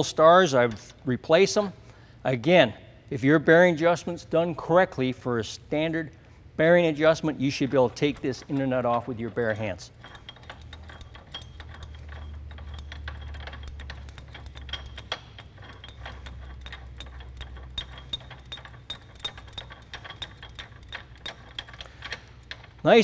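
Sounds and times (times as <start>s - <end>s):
low steady hum: 0.0s - 23.0s
faint metallic clicks and clinks: 0.6s - 1.1s, 7.5s - 23.0s.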